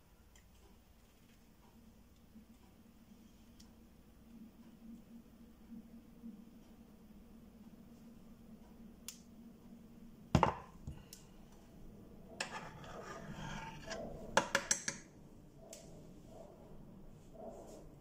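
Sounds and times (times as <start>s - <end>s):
metal pot knocking on cooktop: 10.4s - 10.7s
rubbing and scraping on hob: 12.3s - 14.7s
pot clicking against cooktop: 14.4s - 15.0s.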